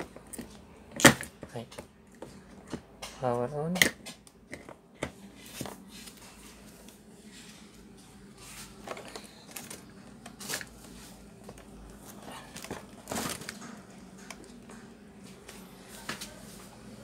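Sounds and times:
hands clicking and tapping tv: 13.5s - 16.3s.

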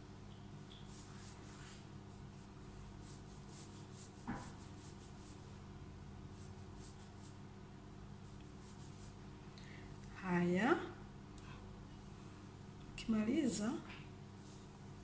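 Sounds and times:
steady low hum: 0.0s - 15.0s
fingertips rubbing through hair: 0.7s - 5.4s, 8.2s - 9.2s.

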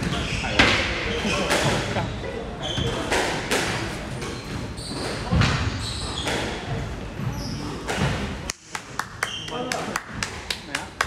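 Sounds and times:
shoes squeaking on wooden floor: 2.6s - 3.3s, 4.1s - 8.3s.

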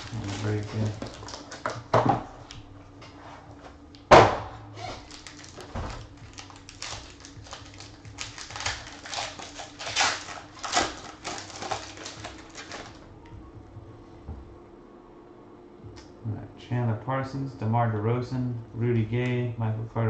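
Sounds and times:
foil pack crinkling and tearing: 0.0s - 1.8s, 4.9s - 13.0s.

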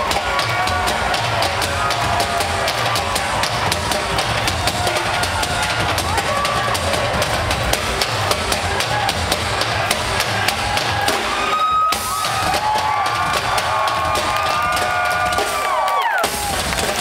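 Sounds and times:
drum beat: 0.0s - 17.0s.

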